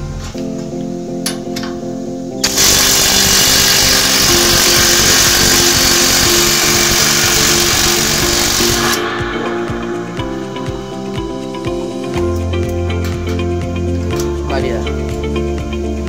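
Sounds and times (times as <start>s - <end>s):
background music: 0.0s - 16.0s
impact wrench hammering: 2.4s - 9.2s.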